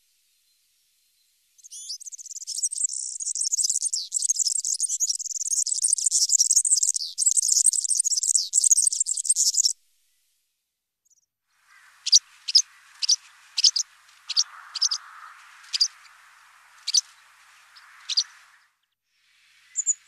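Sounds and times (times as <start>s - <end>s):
bird singing high thin notes: 11.7s - 18.7s, 19.6s - 20.0s.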